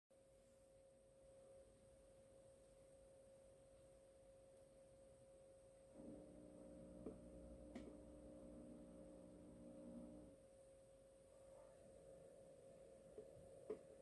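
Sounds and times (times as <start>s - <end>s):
faint steady hum: 0.1s - 14.0s
low full hum: 0.2s - 14.0s.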